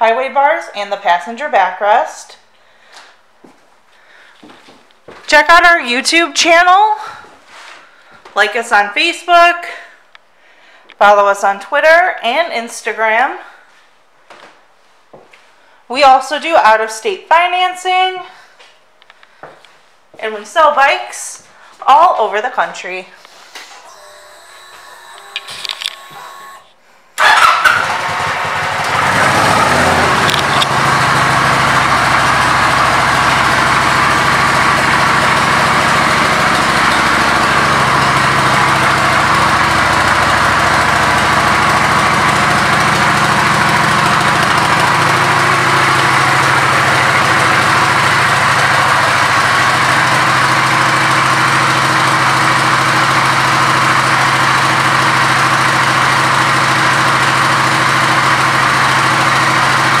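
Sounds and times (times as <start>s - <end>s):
motorcycle engine idling: 23.8s - 60.0s.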